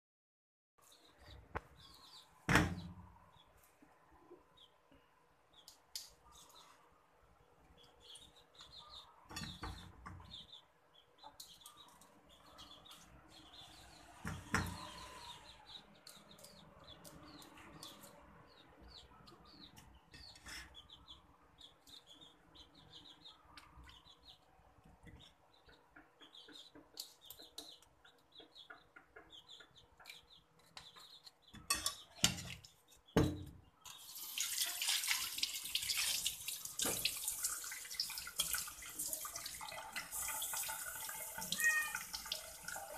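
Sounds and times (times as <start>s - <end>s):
tap water running into sink: 34.0s - 42.9s.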